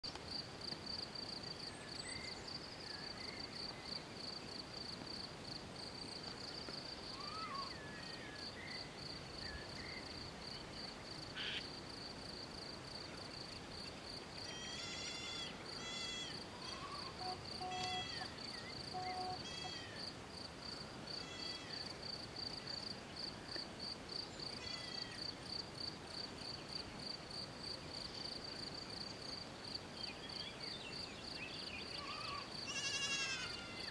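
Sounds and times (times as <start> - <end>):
insects chirring: 0.1 - 33.9
bird chirps: 16.0 - 19.8.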